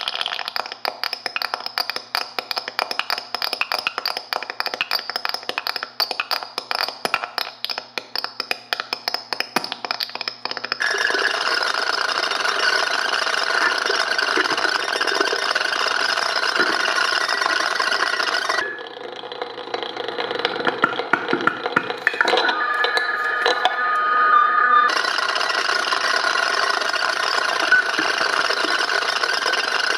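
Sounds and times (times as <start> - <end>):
buzzing feedback rattle: 10.8 - 19.0, 24.9 - 29.9
steady feedback tones: 22.1 - 29.9.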